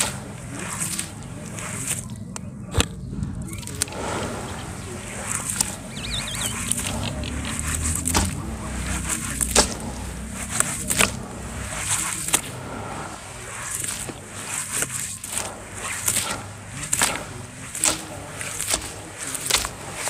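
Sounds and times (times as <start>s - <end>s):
wet sand squelching in water: 0.0s - 2.6s, 3.3s - 20.0s
sharp little pops and crackles: 13.8s - 20.0s.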